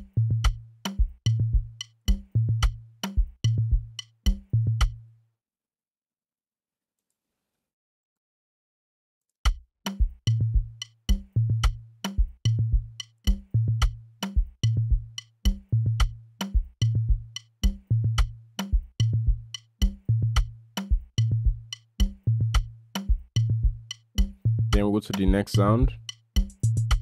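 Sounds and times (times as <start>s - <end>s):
sharp percussion clicks: 9.5s - 14.4s, 15.1s - 16.6s, 23.8s - 27.0s.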